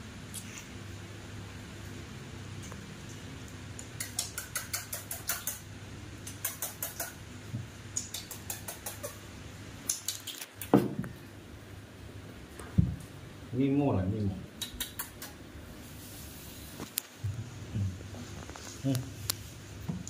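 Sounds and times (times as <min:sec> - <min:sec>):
wet mouth clicks and smacks: 0:03.8 - 0:05.6, 0:06.2 - 0:07.2, 0:07.9 - 0:09.2, 0:09.8 - 0:10.8, 0:14.6 - 0:15.4.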